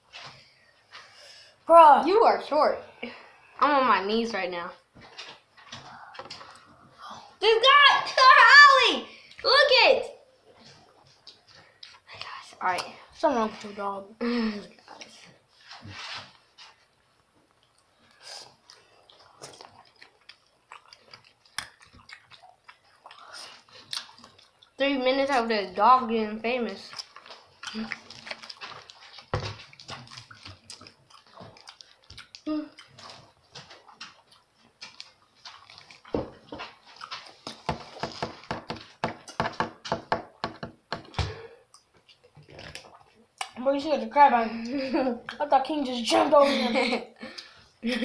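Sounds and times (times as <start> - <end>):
soft chewing and lip smacks: 10.4 - 13.0, 14.7 - 24.8, 26.8 - 37.7, 41.6 - 43.6.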